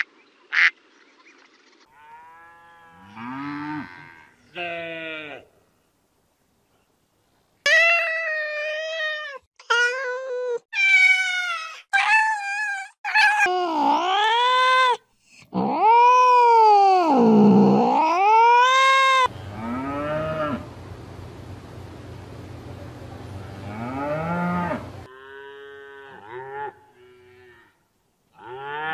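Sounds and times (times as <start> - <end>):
outdoor background noise: 0.0 - 28.9
cow mooing: 1.9 - 5.4, 19.2 - 20.7, 23.4 - 27.8
cat yowling: 10.8 - 13.5.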